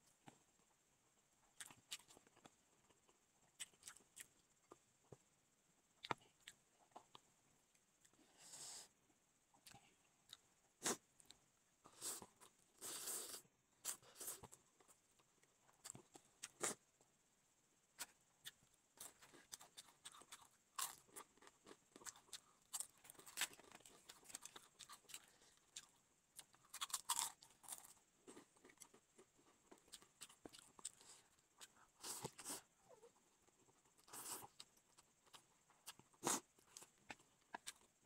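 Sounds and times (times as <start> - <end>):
crisp crunching and chewing: 19.0 - 32.6.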